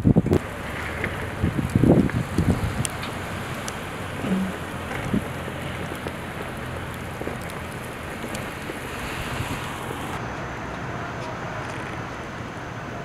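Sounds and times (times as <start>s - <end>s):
strong wind blowing snow: 0.0s - 10.2s.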